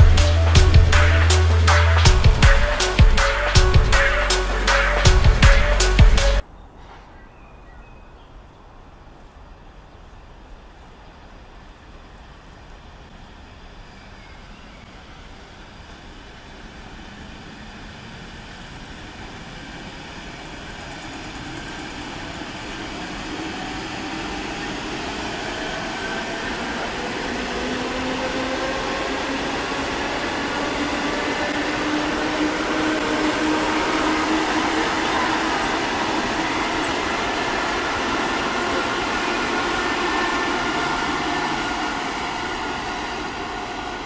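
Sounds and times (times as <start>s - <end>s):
train wheels rumbling on rail: 0.0s - 7.2s, 8.9s - 44.0s
train motor whine: 20.5s - 44.0s.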